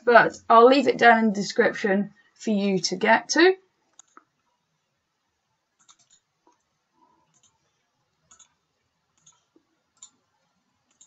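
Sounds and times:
computer mouse and keyboard clicks: 3.9 - 4.3, 5.8 - 10.3.

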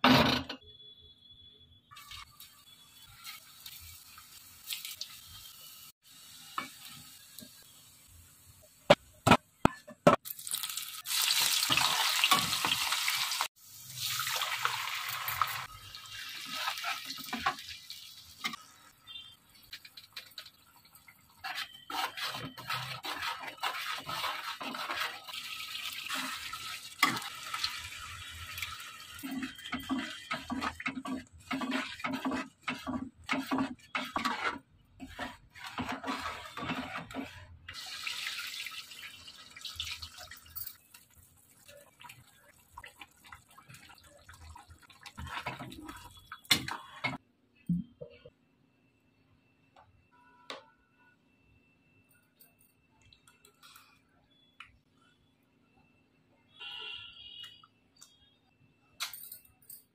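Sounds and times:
paste sizzling in hot oil: 1.9 - 8.9, 10.2 - 46.8
metal spatula scraping pan: 21.0 - 37.8, 45.2 - 47.2.

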